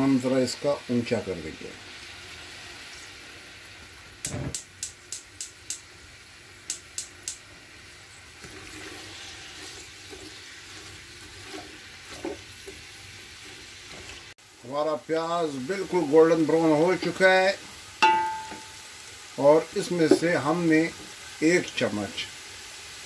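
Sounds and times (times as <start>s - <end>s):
onions sizzling in oil: 0.0s - 23.0s
wooden spoon knocking on pot: 18.0s - 18.8s, 20.1s - 20.3s.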